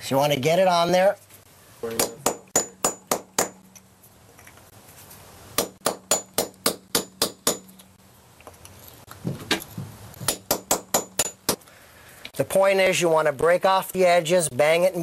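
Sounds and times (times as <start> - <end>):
hammer striking metal chisel: 2.0 - 3.8, 5.6 - 7.9, 10.2 - 11.6.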